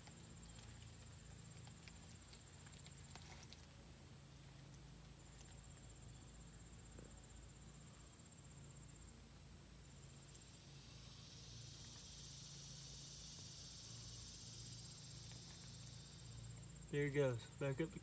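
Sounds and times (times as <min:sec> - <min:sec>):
insect trilling: 0:10.0 - 0:18.0
high insect buzzing: 0:10.4 - 0:16.9.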